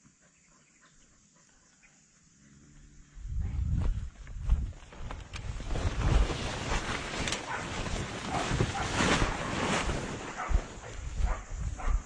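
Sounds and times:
leaves and stems rustling: 3.8s - 12.0s.

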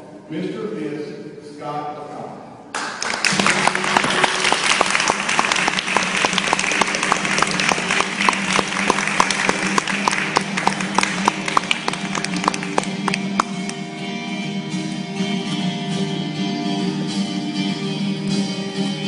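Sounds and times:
crowd clapping: 2.7s - 13.8s.

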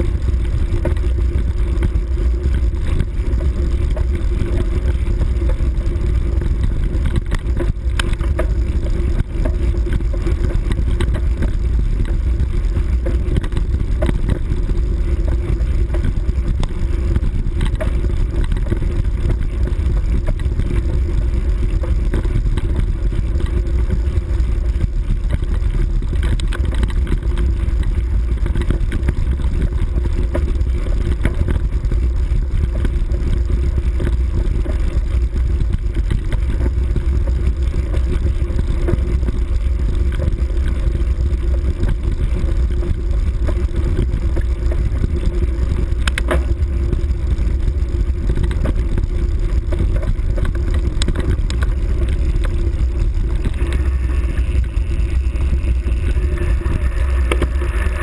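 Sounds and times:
off-road vehicle engine running: 0.0s - 58.0s.

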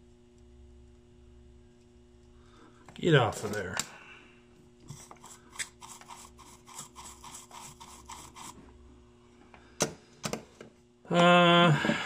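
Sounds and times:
soldering tip scratching in brass wool: 4.9s - 8.6s.

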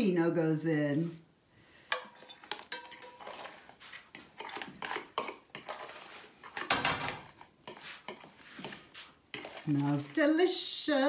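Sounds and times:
metal spoon scraping plastic bowl: 2.0s - 10.5s.

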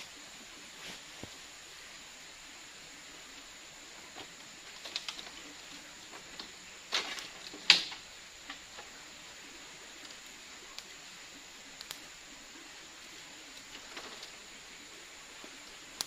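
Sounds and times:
faint forest hiss: 0.0s - 16.0s
bamboo poles creaking and knocking: 3.9s - 9.2s, 13.6s - 14.5s.

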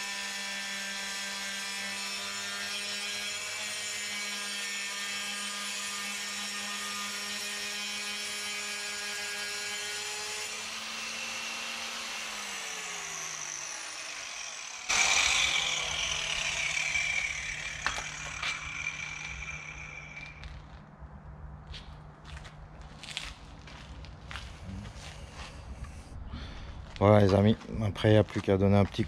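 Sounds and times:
electric tile saw cutting: 0.0s - 20.8s
loud noise with falling whine: 14.8s - 21.4s.

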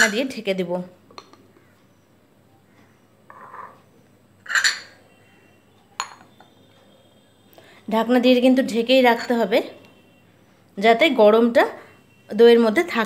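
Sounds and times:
china clinking on glass: 4.4s - 5.0s, 6.0s - 6.4s.

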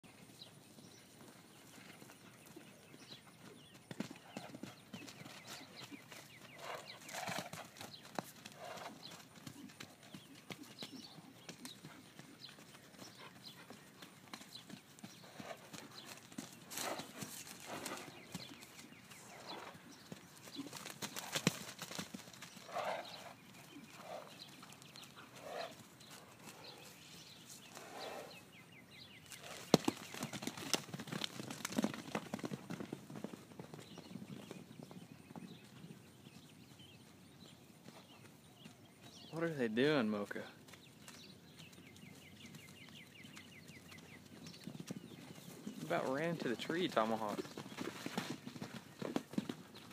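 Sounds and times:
hoofbeats on wet grass: 0.2s - 28.0s, 29.3s - 39.6s, 40.2s - 49.9s
short horse sounds: 22.4s - 28.5s, 45.0s - 49.9s.

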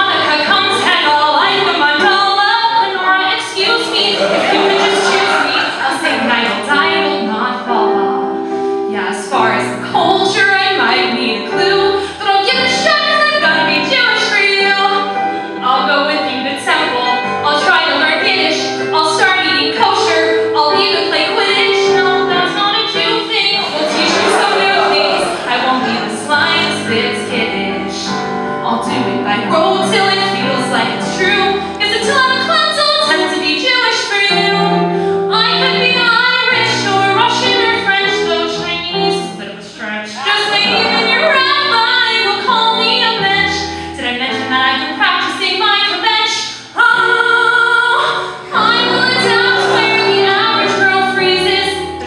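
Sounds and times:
woman singing into microphone: 0.0s - 8.1s, 8.9s - 52.0s
low accompaniment notes: 0.0s - 46.1s, 48.3s - 52.0s.

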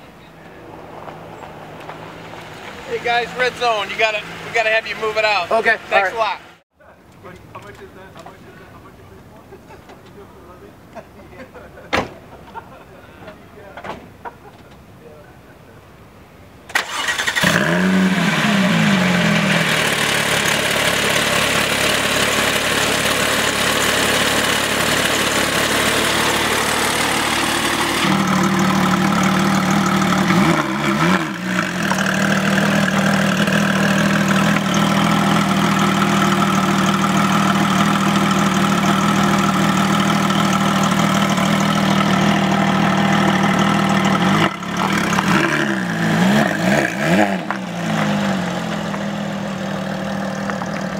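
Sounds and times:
car engine revving then idling: 16.7s - 50.9s.

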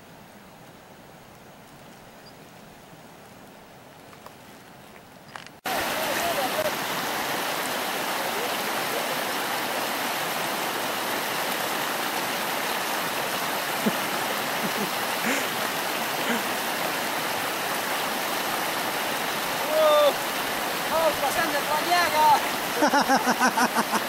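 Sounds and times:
stream running over rocks: 0.0s - 24.0s.

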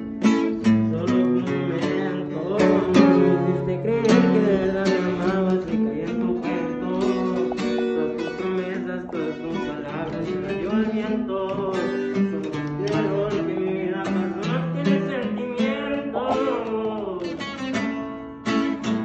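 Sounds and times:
guitar song with singing: 0.0s - 19.0s.

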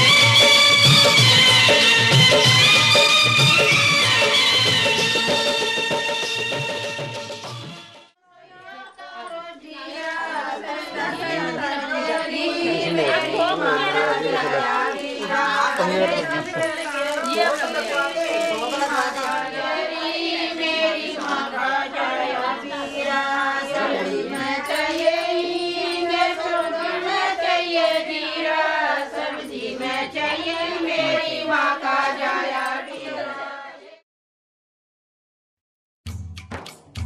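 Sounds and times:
women singing folk song: 8.2s - 34.0s.

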